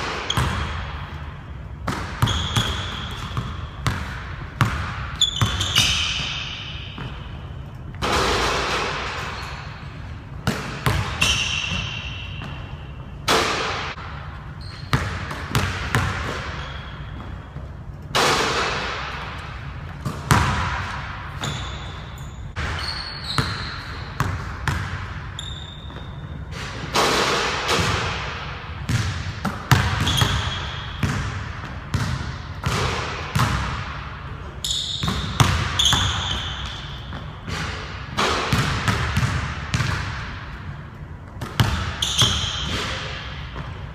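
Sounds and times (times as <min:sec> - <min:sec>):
sneaker squeaks: 0:00.0 - 0:13.6, 0:14.4 - 0:18.2, 0:21.3 - 0:27.0, 0:29.7 - 0:31.2, 0:34.5 - 0:39.9, 0:41.3 - 0:43.9.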